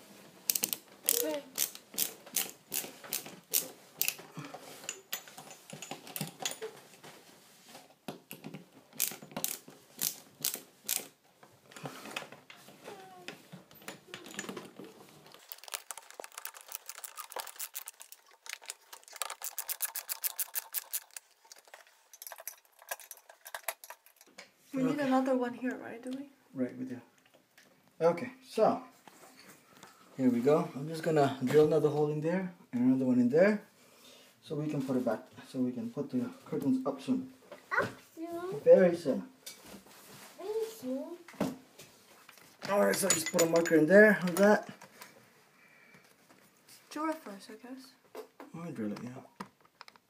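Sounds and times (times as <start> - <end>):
ratcheting screwdriver clicking: 0.5 - 4.2.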